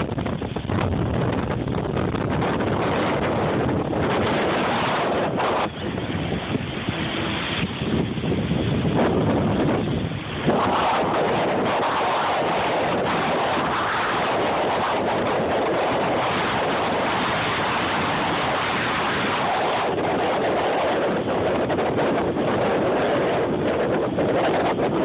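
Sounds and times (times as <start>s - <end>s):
ocean waves breaking: 0.0s - 25.0s
wind buffeting microphone: 0.0s - 25.0s.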